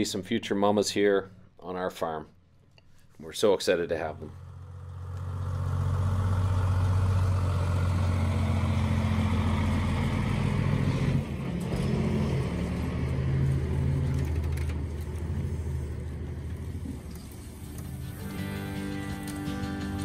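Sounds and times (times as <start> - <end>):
truck diesel engine rumbling: 4.0 - 20.0.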